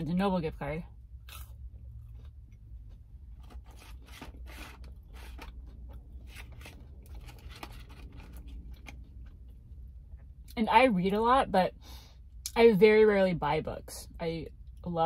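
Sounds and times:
low steady hum: 0:00.0 - 0:15.0
chewing crunchy food: 0:01.2 - 0:09.6.

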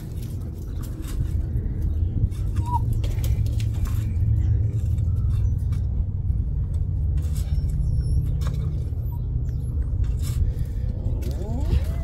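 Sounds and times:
wind buffeting microphone: 0:00.0 - 0:12.0
shovel scraping into soil: 0:07.0 - 0:09.2, 0:09.9 - 0:12.0.

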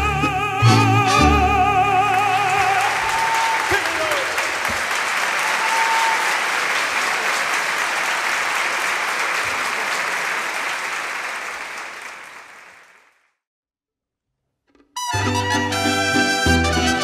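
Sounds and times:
audience applauding: 0:02.0 - 0:13.2.

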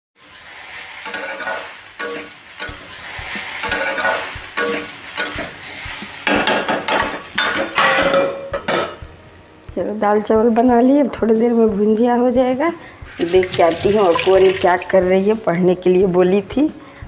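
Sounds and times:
vegetables sizzling: 0:00.2 - 0:07.4, 0:13.1 - 0:15.4
metal spatula scraping a pan: 0:00.2 - 0:08.2.

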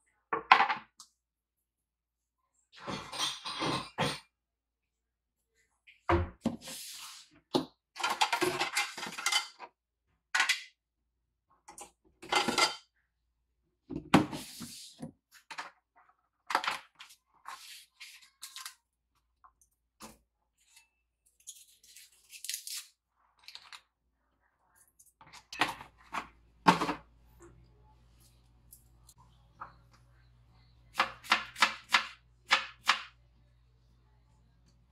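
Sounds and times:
kitchen items clattering on countertop: 0:02.8 - 0:04.3, 0:07.5 - 0:09.8, 0:11.7 - 0:12.9, 0:25.2 - 0:27.1.

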